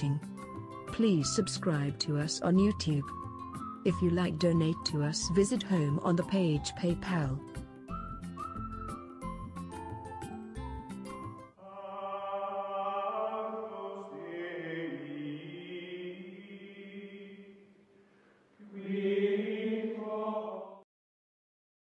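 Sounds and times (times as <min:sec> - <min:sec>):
choir-like chanting voices: 0:11.6 - 0:17.6, 0:18.6 - 0:20.8.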